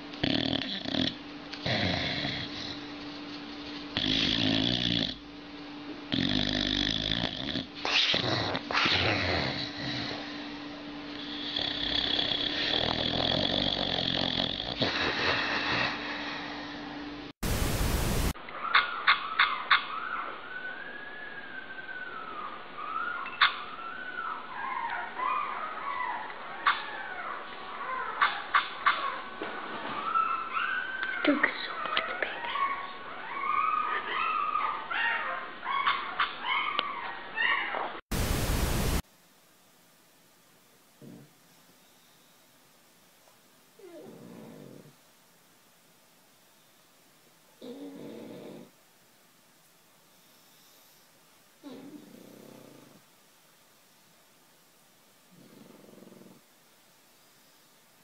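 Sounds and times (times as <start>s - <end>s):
loud static hiss: 0.0s - 18.5s, 38.1s - 43.9s, 52.4s - 58.0s
dog snoring: 0.2s - 2.9s, 3.9s - 5.2s, 6.1s - 10.4s, 11.1s - 16.8s, 41.0s - 41.4s, 43.8s - 45.0s, 47.6s - 48.8s, 51.6s - 53.1s, 55.3s - 56.5s
puppy whimpering in sleep: 6.1s - 10.5s, 11.2s - 16.4s, 20.0s - 28.1s, 29.8s - 37.9s, 43.8s - 45.0s, 47.6s - 48.7s, 51.6s - 53.0s
loud burst of hiss: 17.4s - 18.4s, 38.1s - 39.0s.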